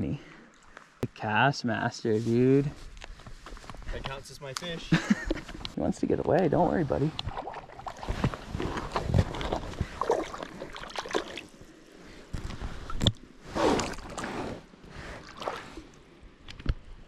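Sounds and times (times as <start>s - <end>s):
water splashing and sloshing: 4.9s - 16.9s.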